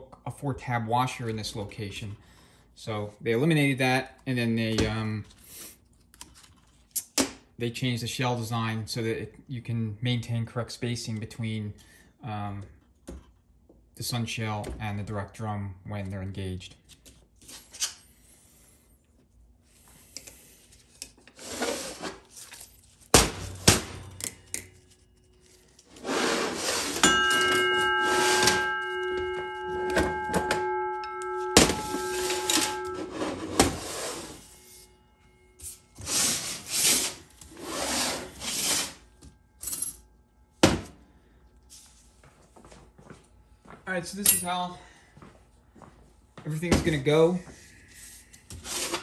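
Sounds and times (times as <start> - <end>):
sharp metal knocks: 27.0 - 34.3
metal part ringing like a bell: 27.0 - 36.0.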